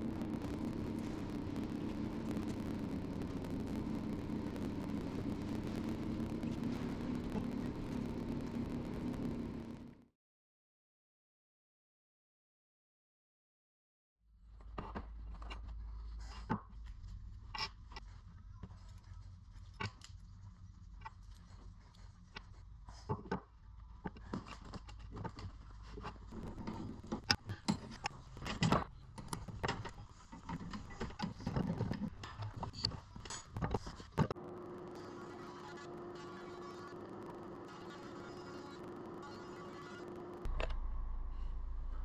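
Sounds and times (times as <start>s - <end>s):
low rumble: 0.0s - 10.1s, 40.3s - 42.0s.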